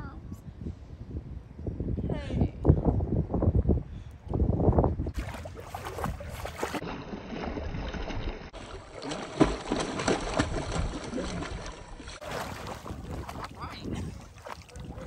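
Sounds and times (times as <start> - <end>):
pool water splashing: 5.1 - 15.0.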